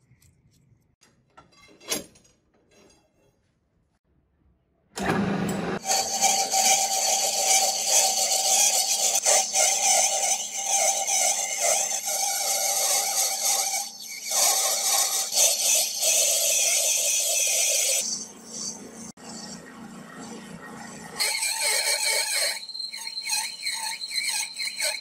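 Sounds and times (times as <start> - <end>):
lathe tool scraping metal: 5.1 - 19.6, 21.0 - 25.0.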